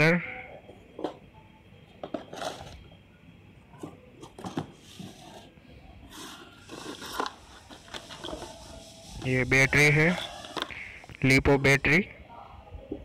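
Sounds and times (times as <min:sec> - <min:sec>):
cardboard boxes rustling and scraping: 0:03.9 - 0:09.4.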